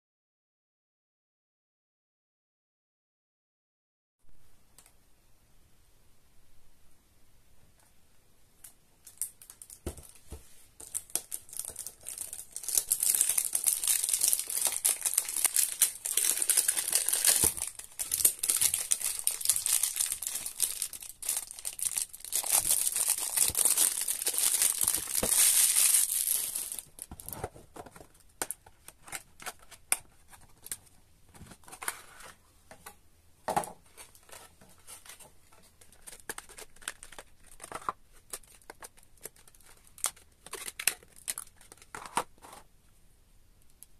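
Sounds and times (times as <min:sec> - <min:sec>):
cellophane tearing and crinkling: 0:10.8 - 0:27.4, 0:35.9 - 0:42.2.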